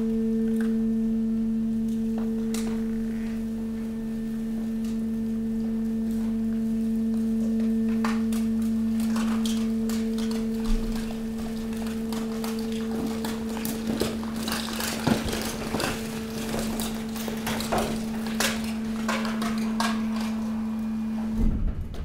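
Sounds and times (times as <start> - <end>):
hydraulic compactor hum: 0.0 - 22.0
rubbish clattering and scraping on steel: 7.7 - 22.0
thump: 21.4 - 22.0.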